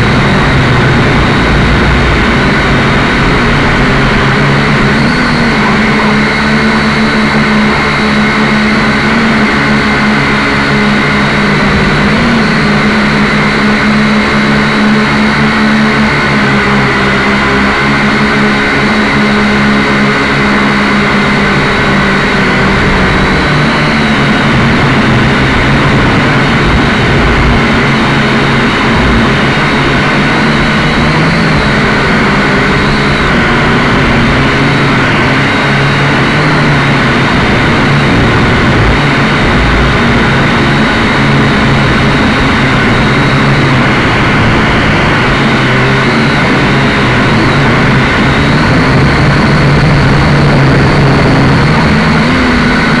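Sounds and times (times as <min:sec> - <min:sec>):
drone propellers whirring: 0:00.0 - 0:53.0.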